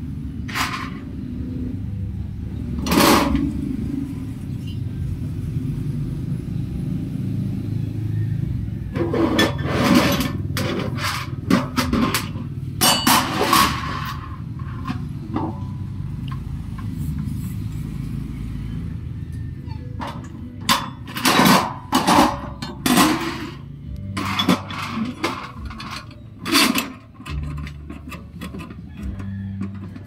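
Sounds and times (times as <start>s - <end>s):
metal parts clinking and knocking: 2.8s - 3.8s, 9.0s - 16.9s, 19.9s - 30.0s.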